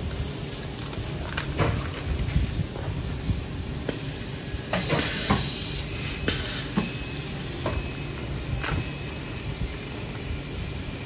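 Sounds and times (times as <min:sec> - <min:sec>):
compressed air hiss: 0:03.2 - 0:06.8.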